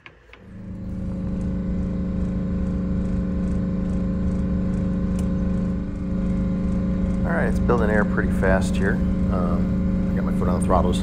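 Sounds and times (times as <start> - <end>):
air compressor building air: 0.0 - 11.0
bus engine starting and running: 0.0 - 11.0.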